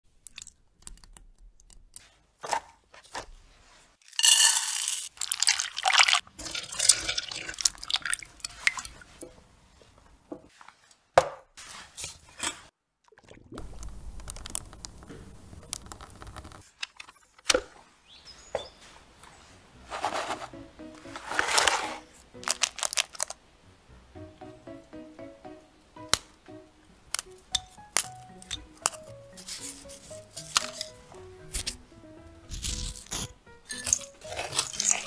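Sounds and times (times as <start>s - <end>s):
crisp crunching: 21.1s - 23.4s, 27.8s - 31.8s, 32.5s - 35.0s.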